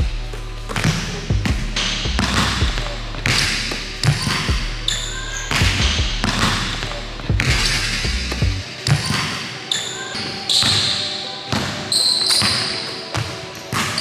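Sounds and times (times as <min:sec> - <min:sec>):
background music with bass line: 0:00.0 - 0:08.8.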